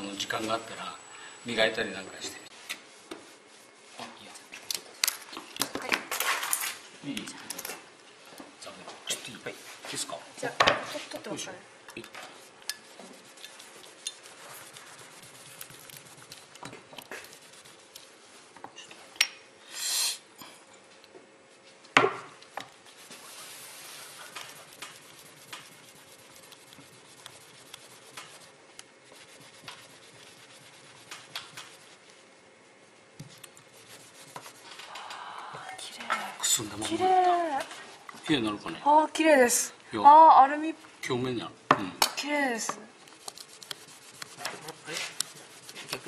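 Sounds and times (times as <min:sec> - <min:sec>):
cloth rubbing on paper: 0:02.5 - 0:04.2, 0:12.3 - 0:18.5, 0:22.7 - 0:34.8, 0:43.1 - 0:46.0.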